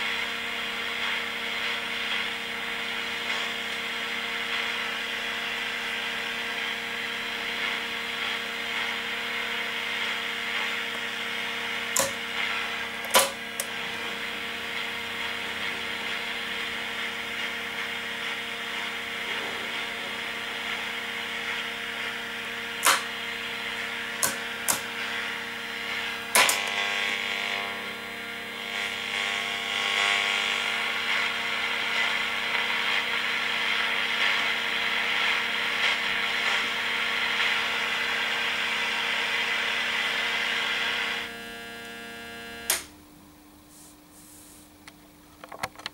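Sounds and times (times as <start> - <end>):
radio static hiss: 0.0 - 27.8, 43.6 - 44.8
radio pushbutton and knob clicks: 22.8 - 23.1.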